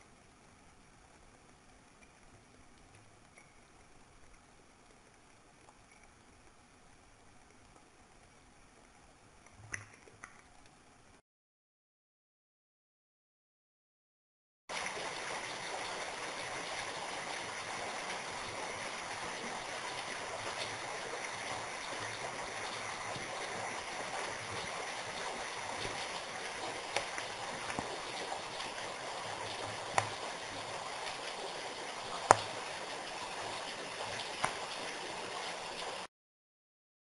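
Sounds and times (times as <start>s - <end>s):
water dripping off rock: 14.7s - 35.4s.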